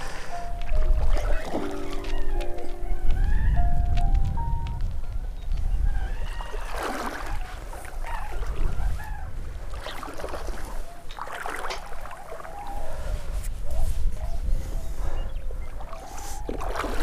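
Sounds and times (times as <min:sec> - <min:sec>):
water splashing and sloshing: 0:00.0 - 0:03.0, 0:05.9 - 0:13.4, 0:15.5 - 0:17.0
wind rumbling on microphone: 0:00.6 - 0:17.0.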